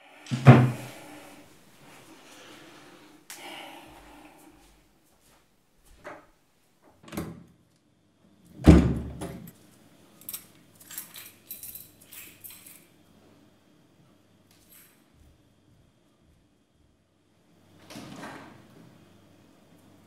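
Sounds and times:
door shutting with thud: 0.3s - 0.9s, 8.6s - 9.4s
keys jingling: 10.2s - 12.9s.

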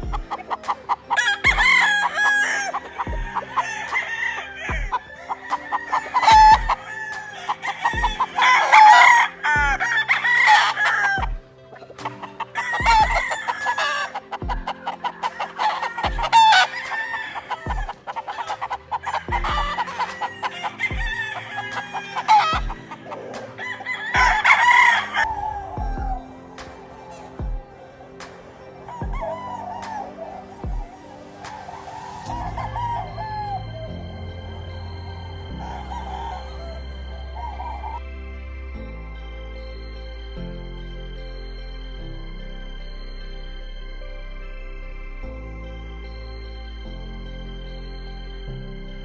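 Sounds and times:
roosters crowing and clucking: 0.0s - 38.8s
background music with beat: 0.0s - 49.0s.

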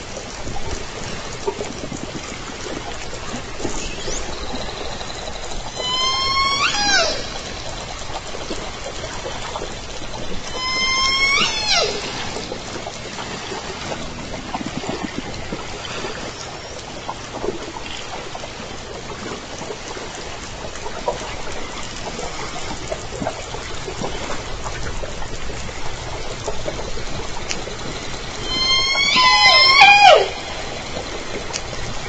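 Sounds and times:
faint underwater clicks: 0.0s - 32.0s
faint squeaks: 3.2s - 9.5s, 10.2s - 12.8s, 28.3s - 32.0s.

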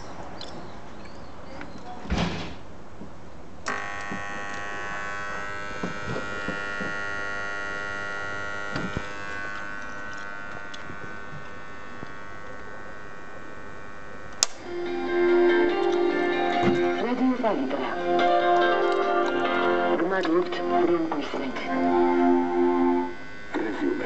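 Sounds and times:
inverter electric buzz with whine: 3.6s - 24.0s
sharp click: 14.3s - 14.6s
switch click: 14.3s - 14.6s.

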